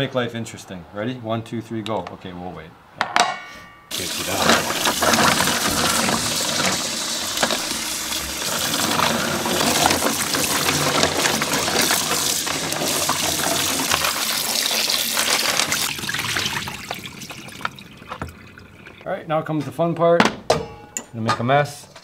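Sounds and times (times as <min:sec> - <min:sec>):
water gushing over a pot: 0:03.9 - 0:19.1.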